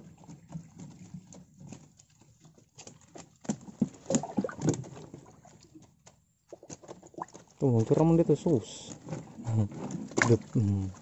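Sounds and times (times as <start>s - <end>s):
mesh trap rattling against boat: 6.7s - 10.6s.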